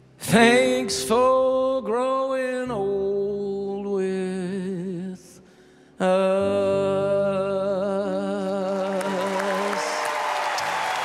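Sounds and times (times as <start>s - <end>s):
man singing with vibrato: 0.0s - 10.3s
audience applause: 8.6s - 11.0s.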